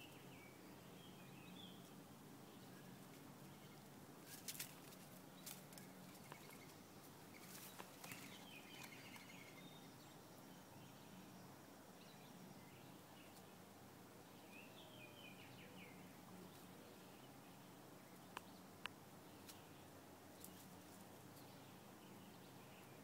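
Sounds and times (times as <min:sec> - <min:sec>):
faint chirping calls: 0:00.0 - 0:13.6.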